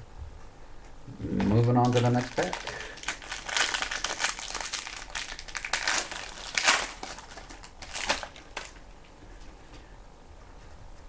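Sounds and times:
foil wrapper crinkling: 1.3s - 9.2s.

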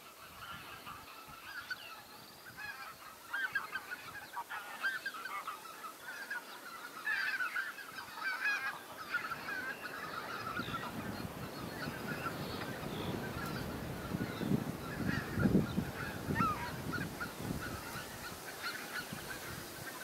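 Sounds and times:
geese honking: 0.0s - 20.0s
wind on microphone: 9.2s - 20.0s.

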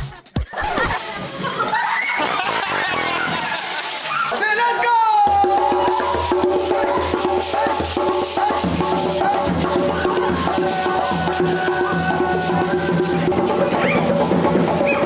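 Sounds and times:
person singing: 5.2s - 14.2s
djembe hand drums beating: 5.2s - 15.0s.

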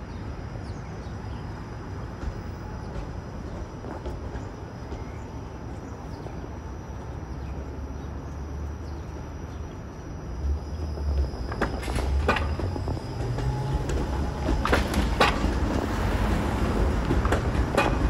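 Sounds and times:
streetcar rumbling past: 0.0s - 18.0s
wheels clicking over track crossings: 0.0s - 18.0s.

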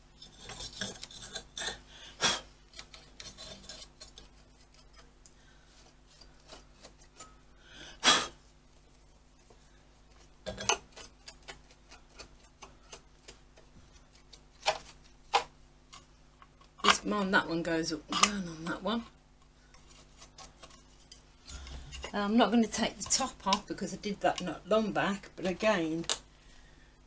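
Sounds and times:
stiff brush scratching: 0.0s - 7.3s, 19.6s - 23.6s.

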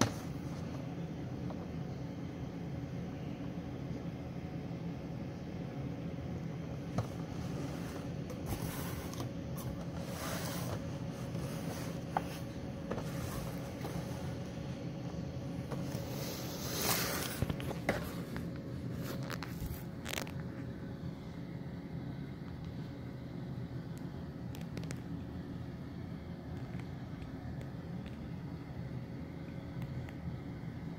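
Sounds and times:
steady low hum: 0.0s - 30.9s
scraping rustle: 7.0s - 14.5s, 15.7s - 20.3s.

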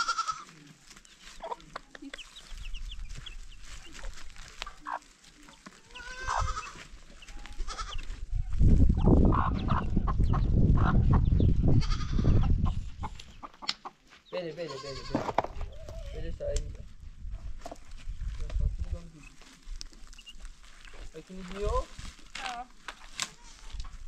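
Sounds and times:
goats bleating: 0.0s - 0.6s, 5.8s - 8.2s, 11.8s - 12.3s, 14.6s - 15.2s.

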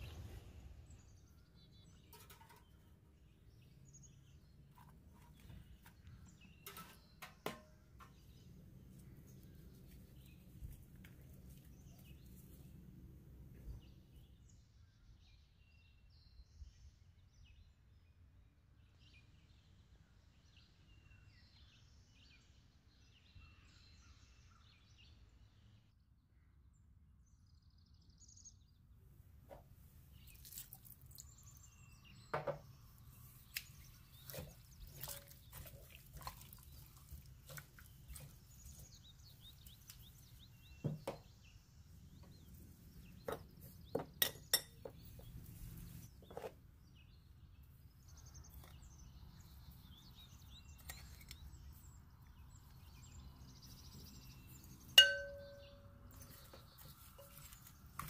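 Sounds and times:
faint high chirps: 54.3s - 57.6s.

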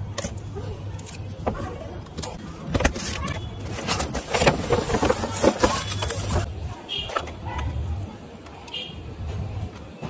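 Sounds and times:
cardboard and packaging rustling: 1.4s - 6.5s.

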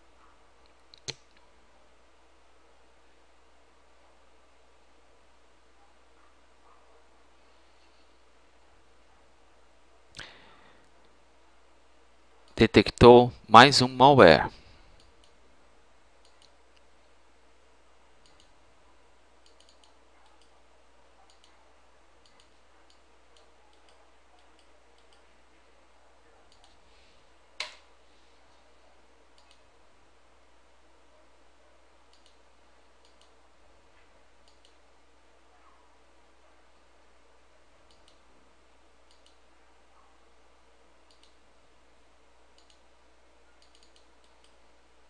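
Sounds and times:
faint low hum: 0.0s - 45.0s
computer mouse clicks: 0.6s - 1.4s, 16.2s - 16.9s, 18.2s - 18.6s, 19.4s - 20.5s, 21.2s - 21.6s, 22.2s - 25.2s, 26.5s - 26.8s, 29.3s - 29.6s, 32.1s - 32.4s, 33.0s - 33.4s, 34.4s - 34.8s, 37.8s - 38.2s, 39.0s - 39.4s, 41.0s - 41.4s, 42.5s - 42.9s, 43.6s - 44.6s.

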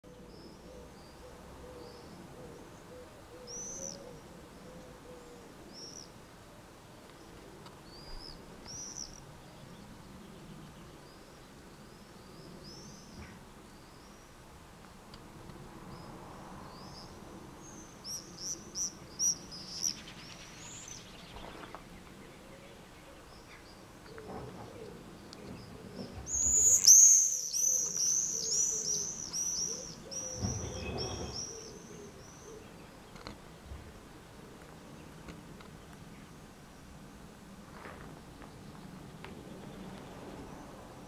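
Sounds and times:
swifts screeching: 26.3s - 31.9s.

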